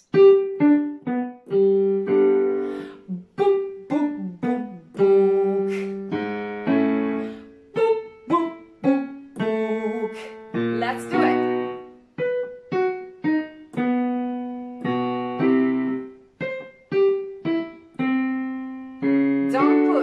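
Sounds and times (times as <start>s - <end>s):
piano descending arpeggio: 0.0s - 20.0s
woman humming with closed lips: 3.0s - 6.1s, 7.8s - 10.4s.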